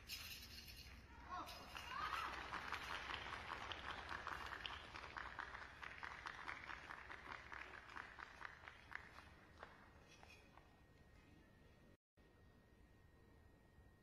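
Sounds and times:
scattered hand clapping: 1.6 - 10.0.

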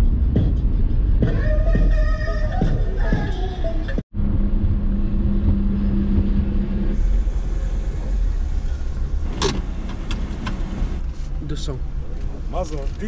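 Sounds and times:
van engine rumble: 0.0 - 13.0
steady hum: 3.4 - 12.7.

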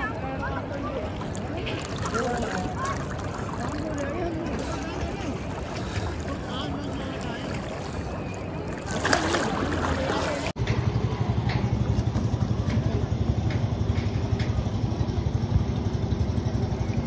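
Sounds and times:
water noise: 0.0 - 10.6.

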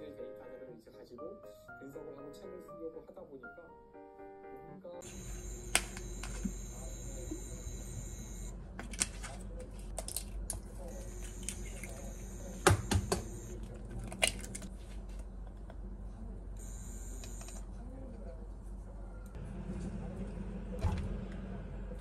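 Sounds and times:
utensils and bowls tapping: 9.7 - 14.7.

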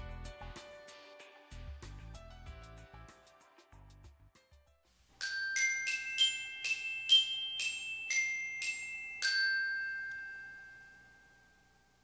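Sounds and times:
glockenspiel jingle: 5.2 - 12.0.

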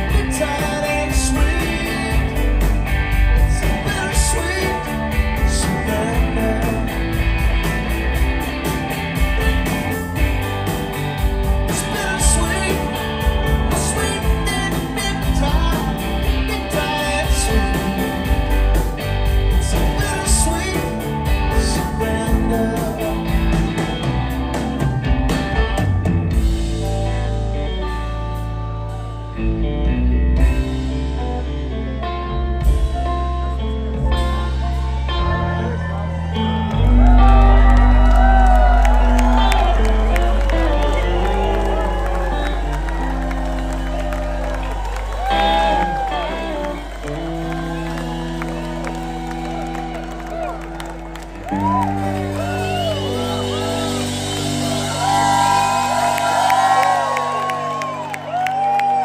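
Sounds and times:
man singing lead vocal: 0.0 - 7.5, 11.6 - 18.8, 19.4 - 24.0
bass: 0.0 - 59.0
drums: 0.0 - 59.0
electric guitar: 0.0 - 59.0
keyboards: 0.0 - 59.0.

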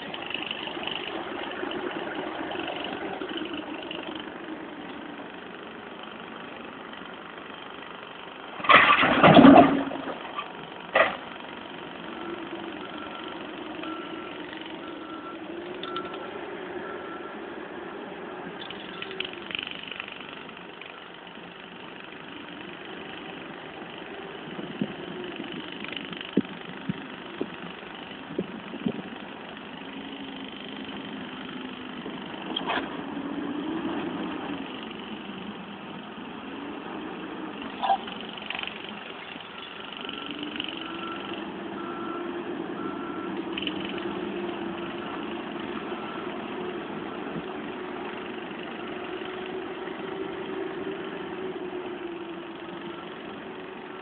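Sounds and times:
diesel engine under load: 0.0 - 54.0
bucket striking rubble: 8.6 - 10.1
reversing alarm beeping: 12.1 - 17.4, 39.5 - 43.8.

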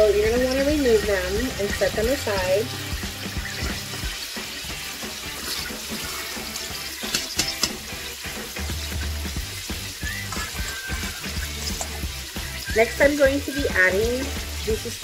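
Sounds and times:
beef sizzling in a pot: 0.0 - 15.0
metal tongs clicking on metal: 7.0 - 7.8.

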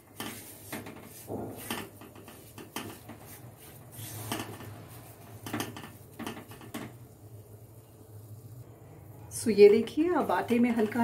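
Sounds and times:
spatula scraping a pan: 0.0 - 6.9.

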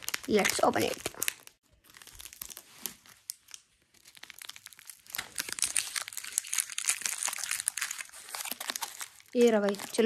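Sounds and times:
packaging crinkling and tearing: 0.0 - 10.0.

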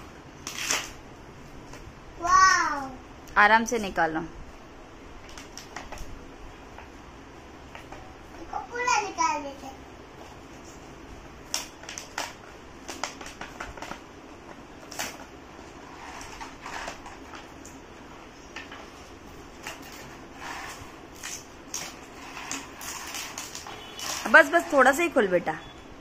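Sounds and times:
plastic packaging crackling: 0.4 - 1.8, 5.2 - 6.8, 10.5 - 25.2.

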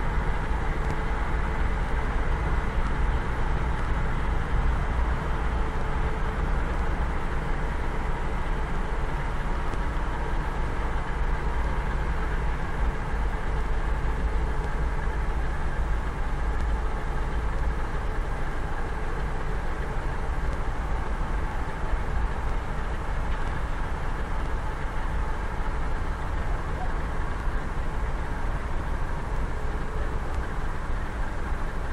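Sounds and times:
diesel locomotive engine drone: 0.0 - 31.9
faint steady tone: 0.0 - 31.9.

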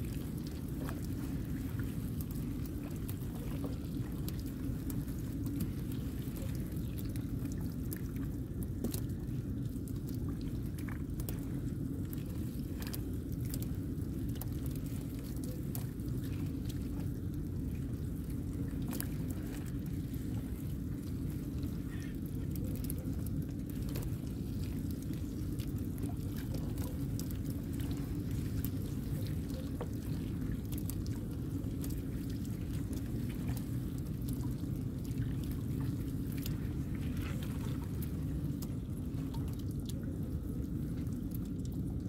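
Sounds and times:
fish slapping and clicking: 0.0 - 41.8
steady low rumble: 0.0 - 42.0
water dripping: 0.0 - 42.0.

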